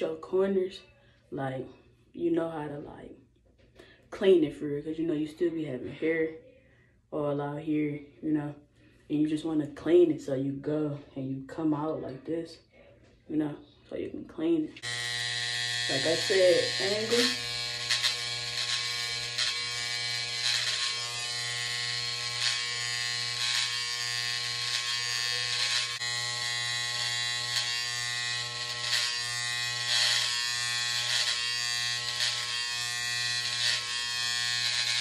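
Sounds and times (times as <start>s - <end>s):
electric hair trimmer buzzing: 14.8s - 35.0s
trimmer blade scratching hair: 14.8s - 35.0s.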